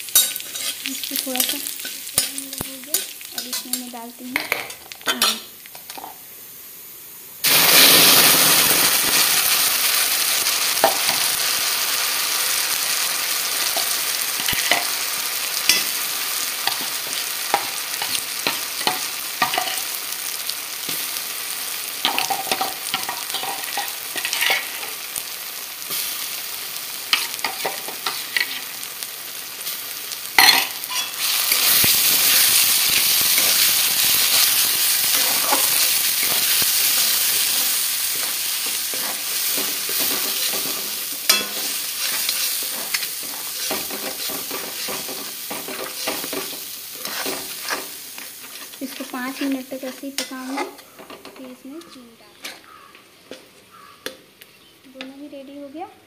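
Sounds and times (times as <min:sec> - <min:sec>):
paste sizzling in hot oil: 0:00.0 - 0:51.0
spatula scraping a pan: 0:00.1 - 0:03.8, 0:30.4 - 0:51.2.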